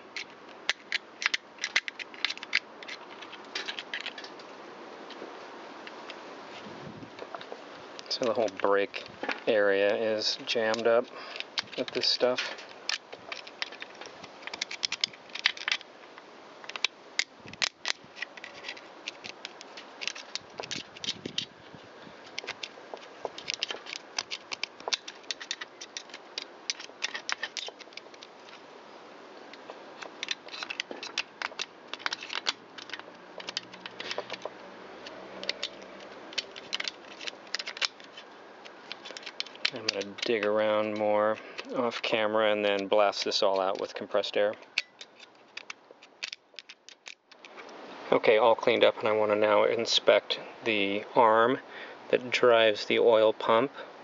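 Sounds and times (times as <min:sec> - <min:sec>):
screwdriver scraping metal: 0:30.0 - 0:34.4.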